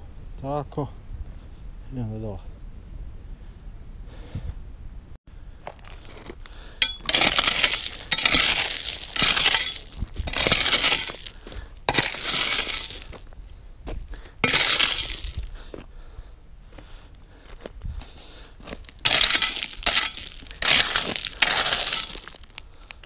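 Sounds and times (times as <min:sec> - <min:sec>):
footsteps crunching on scree: 0:05.6 - 0:16.0, 0:16.7 - 0:23.0.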